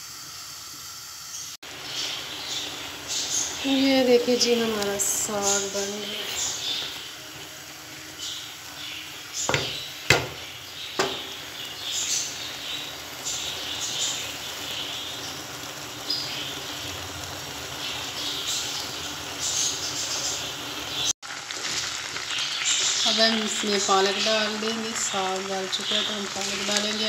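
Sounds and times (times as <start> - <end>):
water boiling in a pot: 0.0 - 27.0
ladle knocking against pot: 9.5 - 11.3.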